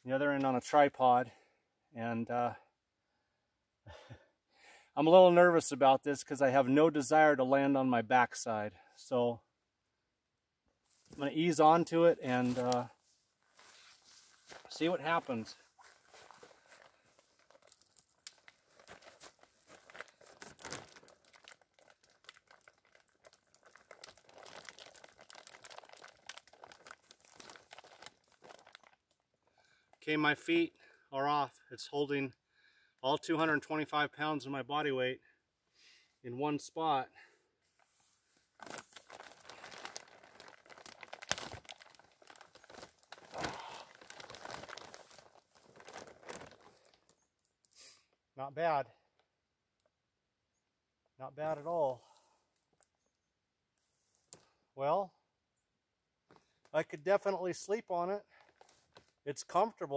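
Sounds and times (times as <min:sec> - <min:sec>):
plastic sheet crinkling: 0:12.2 - 0:12.9, 0:13.5 - 0:29.1, 0:38.5 - 0:47.2.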